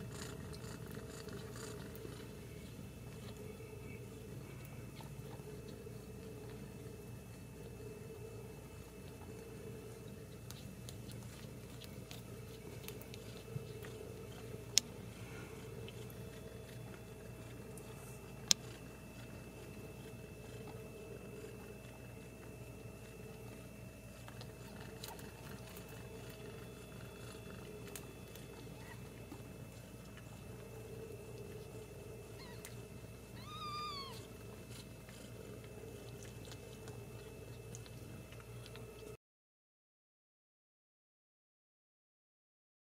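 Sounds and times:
kittens suckling: 0.0 - 39.1
steady low hum: 0.0 - 39.2
kitten mewing: 32.4 - 34.4.

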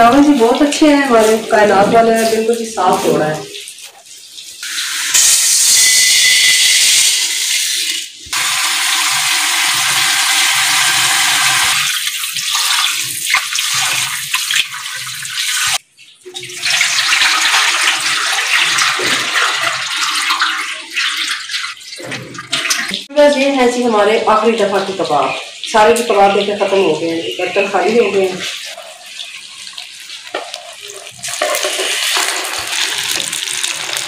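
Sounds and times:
tap water running: 0.0 - 34.0
rice pouring into steel bowl: 31.2 - 34.0.

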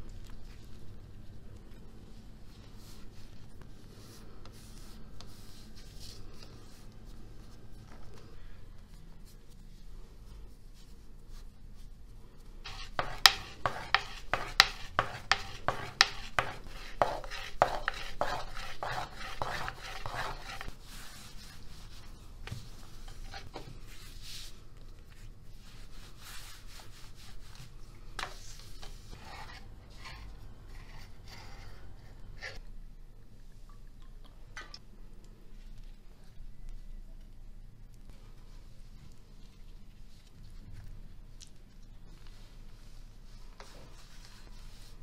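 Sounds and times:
rolling pin knocking on counter: 12.7 - 17.9
dough rubbing swish: 12.7 - 24.6.

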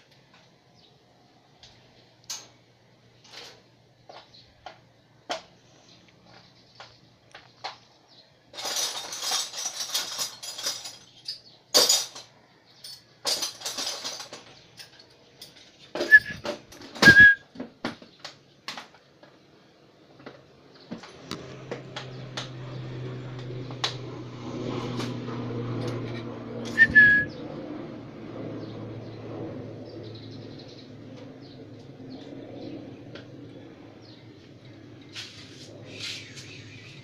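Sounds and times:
parrot chirping: 16.1 - 16.4, 26.8 - 27.3.

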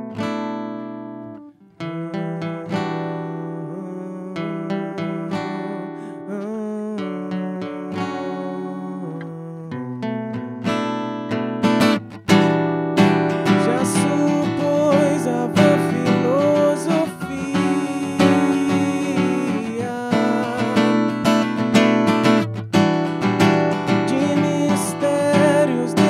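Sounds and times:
acoustic guitar strumming: 0.0 - 26.0
man singing: 2.0 - 10.8, 13.4 - 21.8, 23.8 - 26.0.

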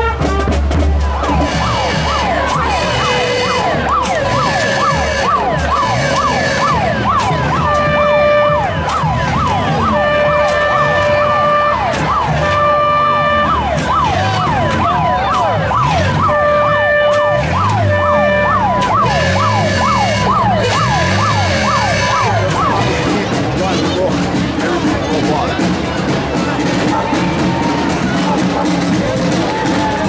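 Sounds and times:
horn-like tones: 0.0 - 24.0
sirens yelping: 1.0 - 30.0.

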